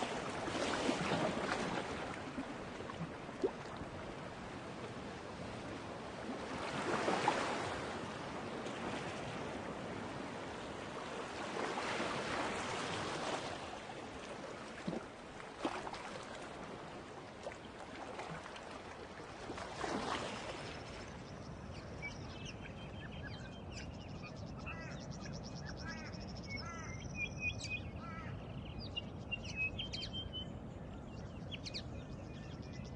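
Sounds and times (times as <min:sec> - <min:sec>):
sea waves rushing: 0:00.0 - 0:21.1
faint high chirping calls: 0:20.8 - 0:32.9.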